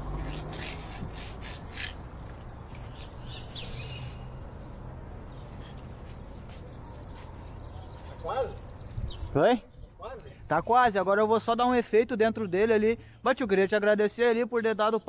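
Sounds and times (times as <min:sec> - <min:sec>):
low street noise: 0:00.0 - 0:15.0
faint bird chirps: 0:02.8 - 0:10.0.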